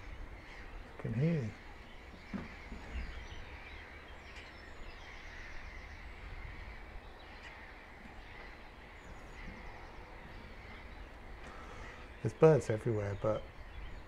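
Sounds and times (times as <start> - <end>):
wild birds calling and singing: 0.0 - 14.0.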